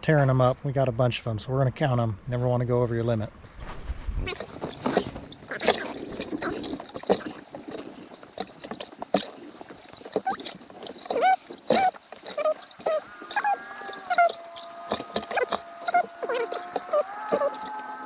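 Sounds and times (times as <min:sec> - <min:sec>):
fish slapping and knocking: 0:04.3 - 0:18.0
water splashing and dripping: 0:04.4 - 0:18.0
squeaky high-pitched gliding sounds: 0:10.1 - 0:18.0.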